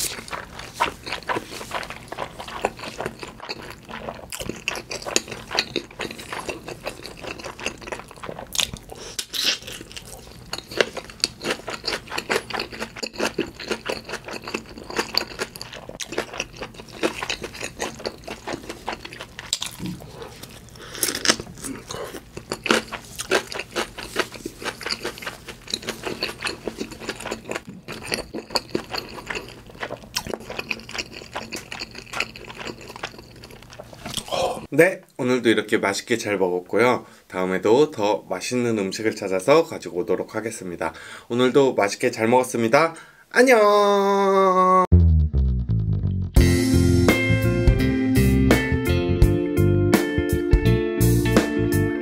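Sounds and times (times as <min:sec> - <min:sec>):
close chewing of food: 0:00.0 - 0:34.7.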